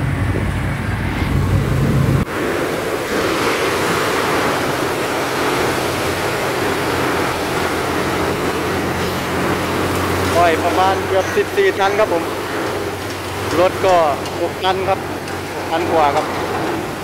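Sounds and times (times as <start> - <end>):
hydraulic rushing noise: 0.0 - 17.0
truck engine humming: 0.0 - 17.0.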